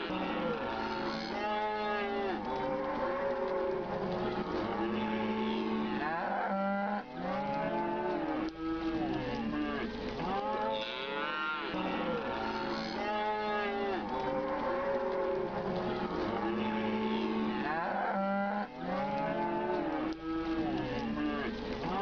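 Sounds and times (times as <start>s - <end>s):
cattle mooing: 0.0s - 22.0s.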